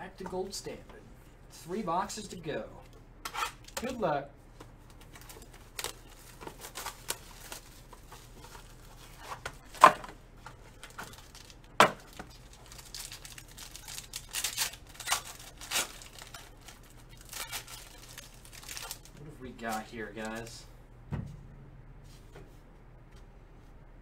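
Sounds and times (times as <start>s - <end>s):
foil wrapper crinkling: 4.9s - 20.5s
foil wrapper ripping: 5.1s - 9.2s, 10.7s - 20.5s.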